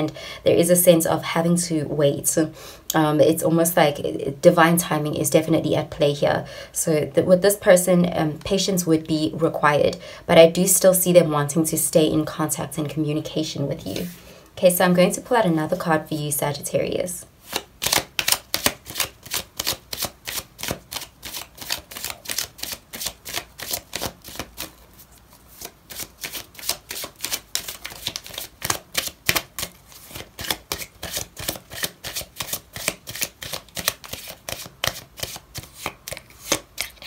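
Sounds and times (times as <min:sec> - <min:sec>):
cards being shuffled: 0:17.4 - 0:37.0.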